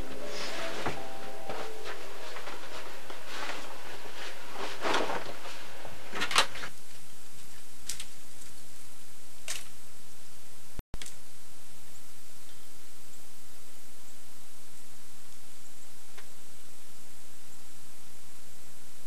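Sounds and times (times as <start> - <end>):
background hiss: 0.0 - 19.0
fabric rustling: 0.1 - 6.7.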